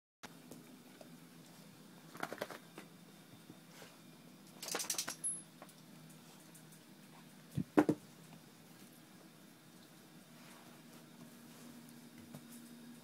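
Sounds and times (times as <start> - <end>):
dog clicking and rustling on bed: 4.5 - 5.3.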